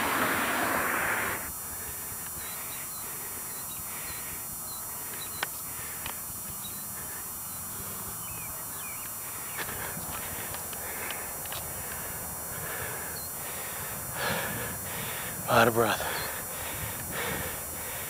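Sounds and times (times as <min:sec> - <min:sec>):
loud rushing noise: 0:00.0 - 0:01.5
birds chirping: 0:02.4 - 0:18.0.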